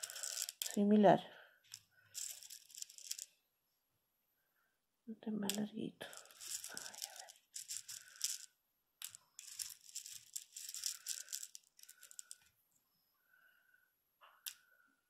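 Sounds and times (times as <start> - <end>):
beads rattling in plastic box: 0.0 - 0.9, 1.7 - 3.4, 5.5 - 12.5.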